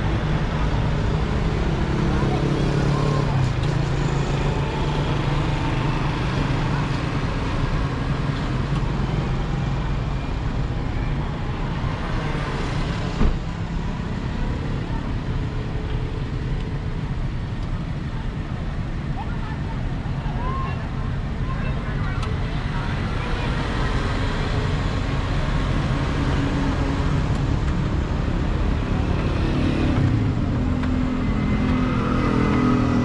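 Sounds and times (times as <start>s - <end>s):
cars passing: 19.6s - 33.0s.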